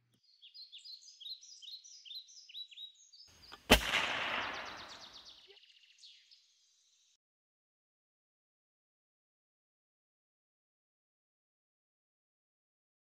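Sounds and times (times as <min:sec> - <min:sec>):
small birds chirping: 0:00.0 - 0:07.2
gunshot with echo: 0:03.6 - 0:05.3
bird trilling: 0:04.4 - 0:05.4.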